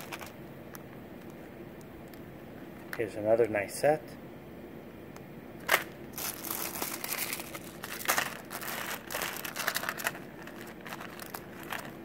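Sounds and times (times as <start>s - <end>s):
plastic bags crinkling: 0.0s - 0.4s, 5.6s - 12.0s.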